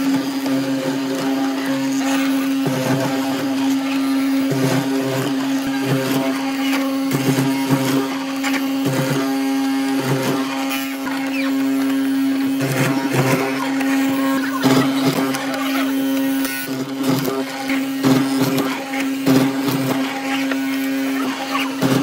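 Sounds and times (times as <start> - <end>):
mortiser motor humming: 0.0 - 22.0.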